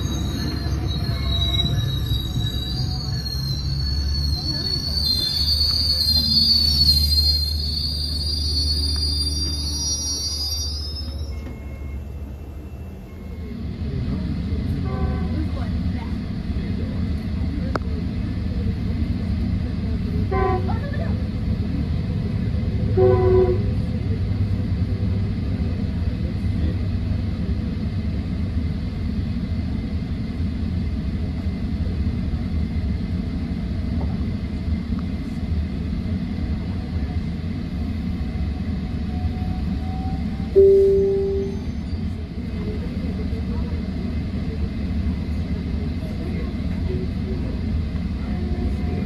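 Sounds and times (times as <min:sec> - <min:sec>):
diesel locomotives rumbling: 0:00.0 - 0:49.0
locomotive horn toots: 0:14.8 - 0:15.5, 0:20.3 - 0:20.8, 0:22.9 - 0:23.8, 0:40.6 - 0:41.7.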